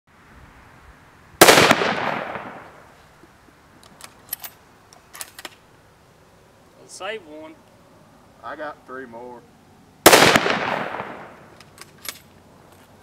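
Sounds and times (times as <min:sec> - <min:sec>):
rifle shot: 0:01.4 - 0:02.8, 0:10.0 - 0:11.5.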